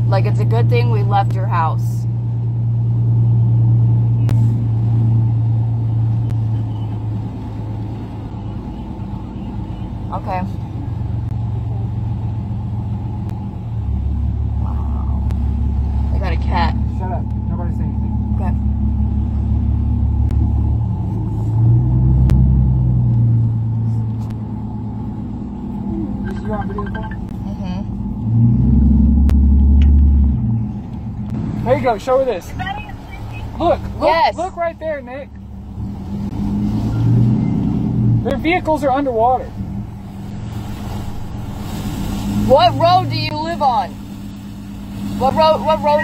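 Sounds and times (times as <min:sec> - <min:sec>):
road rumble: 0:00.0 - 0:46.0
truck engine droning: 0:00.0 - 0:46.0
tyres rushing through water: 0:29.7 - 0:46.0.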